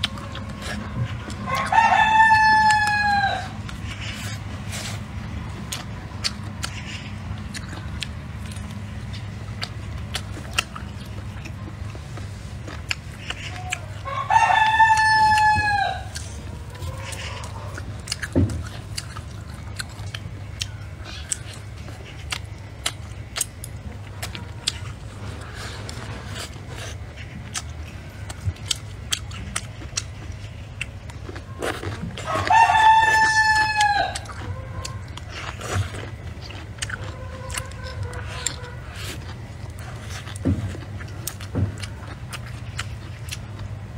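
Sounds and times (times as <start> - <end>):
chewing on a bone: 0.0 - 43.9
rooster crowing: 1.4 - 3.6, 13.5 - 17.8, 32.2 - 35.5.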